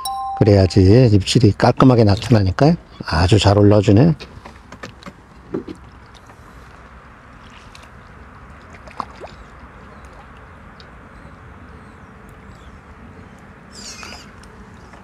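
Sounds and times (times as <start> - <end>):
steady outdoor hiss: 0.0 - 15.0
fish splashing in water: 5.8 - 15.0.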